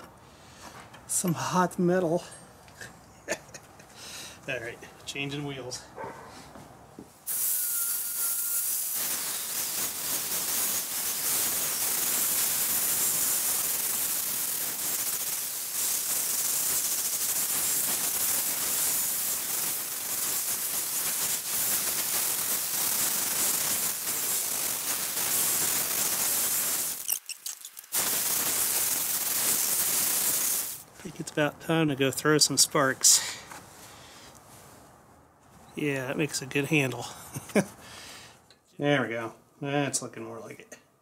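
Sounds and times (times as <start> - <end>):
angle grinder grinding metal: 7.3 - 9.9, 24.1 - 30.8.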